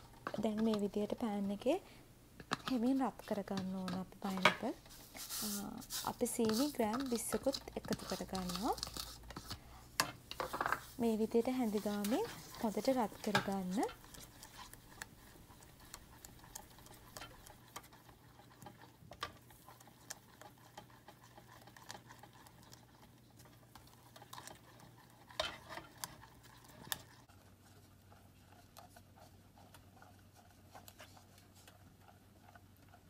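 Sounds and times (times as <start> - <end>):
spatula scraping a saucepan: 0.0 - 1.7, 2.4 - 33.0.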